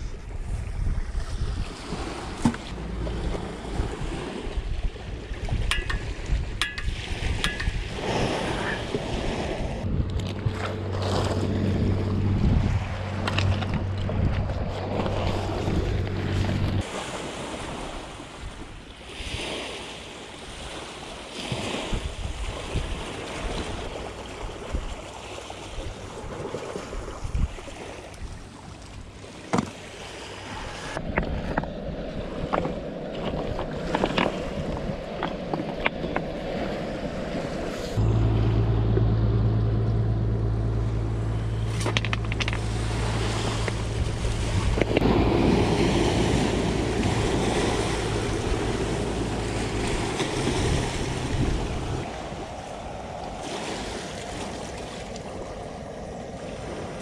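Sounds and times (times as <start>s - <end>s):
waves washing on shore: 0.0s - 38.7s, 40.9s - 57.0s
wind: 0.0s - 57.0s
low mechanical hum: 2.5s - 5.6s, 9.6s - 16.8s, 37.8s - 52.4s
clicks and knocks: 41.7s - 42.7s.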